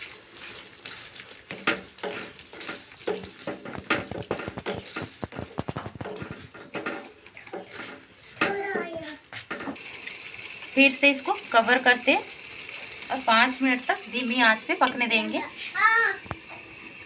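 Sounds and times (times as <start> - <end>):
wooden spatula scraping a pan: 0.0 - 9.8
faint sizzle: 6.2 - 17.0.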